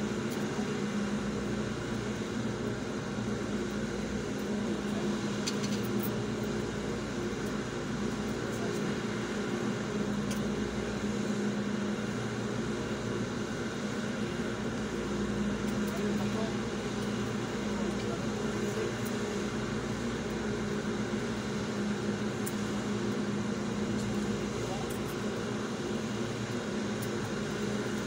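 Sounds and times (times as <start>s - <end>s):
air conditioning: 0.0s - 28.0s.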